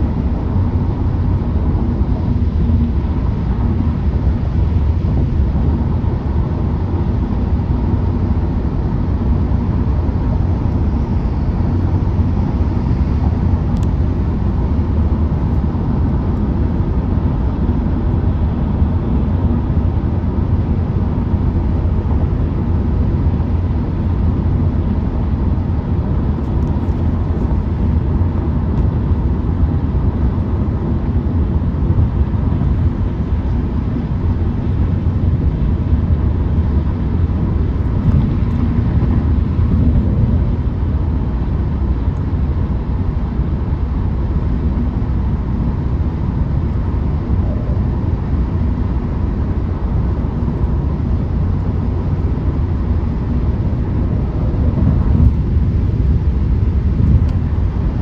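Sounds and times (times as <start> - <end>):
car road noise low rumble: 0.0 - 58.0.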